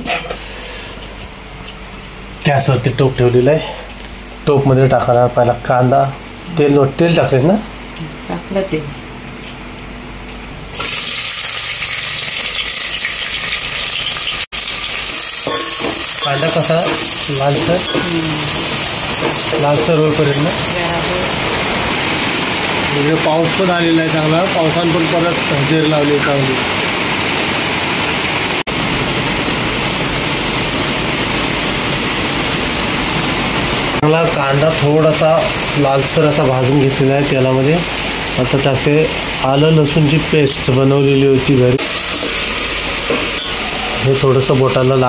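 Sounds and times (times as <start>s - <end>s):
onion sizzling in hot oil: 10.7s - 45.0s
heavy rain hissing: 16.1s - 45.0s.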